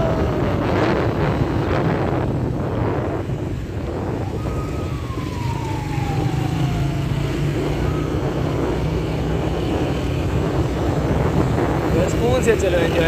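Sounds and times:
car engine and tyres rumbling: 0.0s - 13.0s.

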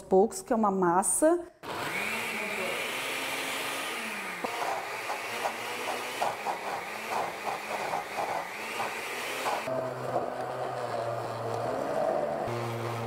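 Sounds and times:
blender motor whining: 1.6s - 13.0s
utensil knocking in blender: 1.8s - 9.7s.

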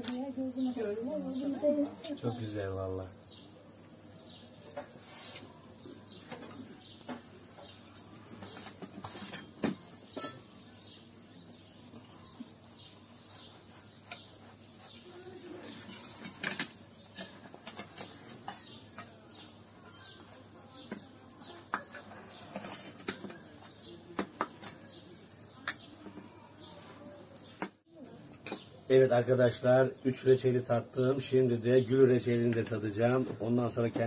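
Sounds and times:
small birds chirping: 0.0s - 34.0s
cutlery clinking on dishes: 10.1s - 10.5s.

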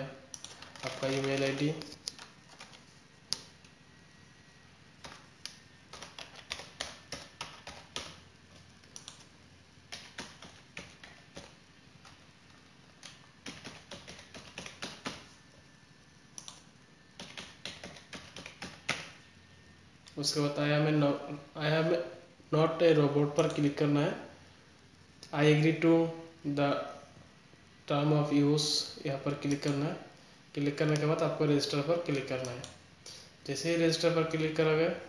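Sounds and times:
typing on keyboard: 0.3s - 3.5s, 5.0s - 9.3s, 9.9s - 12.2s, 13.0s - 15.3s, 16.4s - 19.2s.

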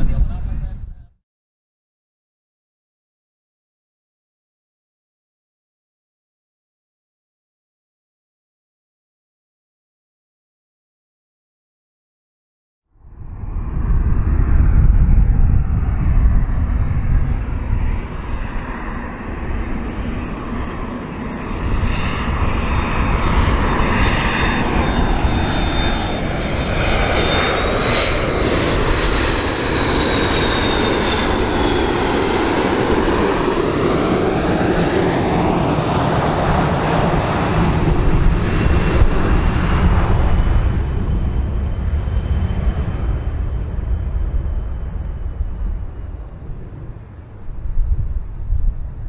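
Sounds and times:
high jet engine whine: 0.0s - 1.1s, 13.0s - 49.0s
jet airliner flying past: 0.0s - 1.1s, 13.0s - 49.0s.

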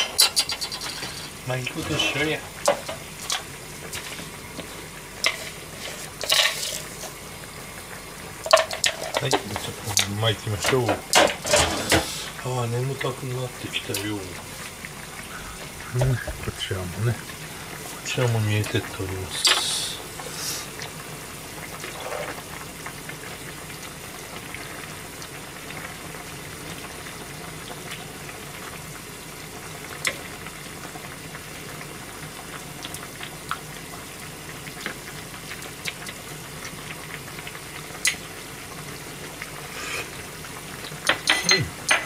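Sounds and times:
broth simmering and bubbling: 0.0s - 42.0s
utensil clicking against a pan: 8.4s - 10.1s.

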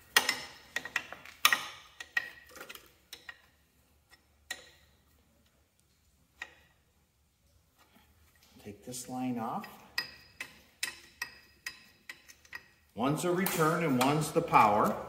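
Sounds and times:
wrench clinking on metal fittings: 0.0s - 3.5s, 4.1s - 4.9s, 9.4s - 15.0s.

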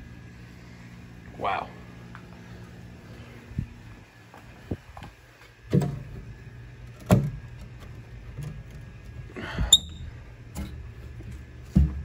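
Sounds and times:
brief squeak: 9.7s - 10.0s.

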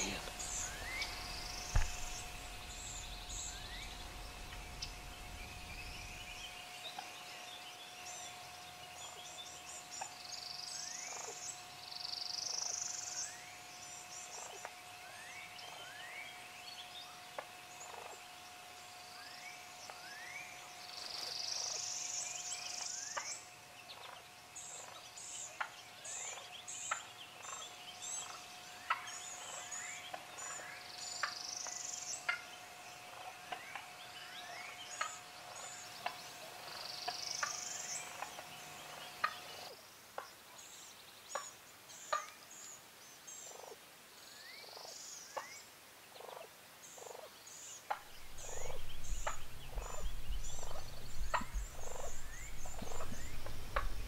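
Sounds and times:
songbirds singing: 0.0s - 54.0s
turkeys gobbling: 47.9s - 54.0s.

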